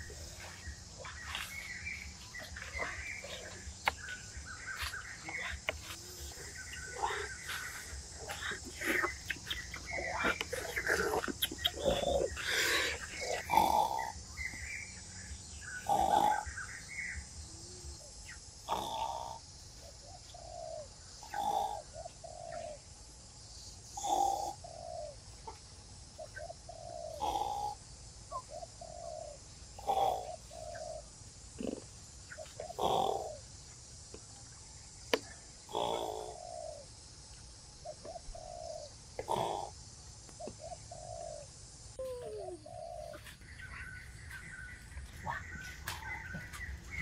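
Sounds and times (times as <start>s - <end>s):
bird calling: 0.0s - 22.8s, 26.2s - 33.5s, 35.1s - 36.9s, 37.8s - 47.0s
insect hiss: 0.0s - 47.0s.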